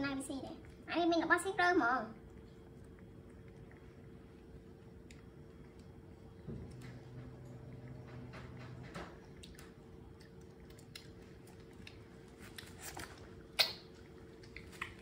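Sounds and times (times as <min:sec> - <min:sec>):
monkey chewing fruit: 0:02.1 - 0:15.0
fingers peeling fruit: 0:09.4 - 0:15.0.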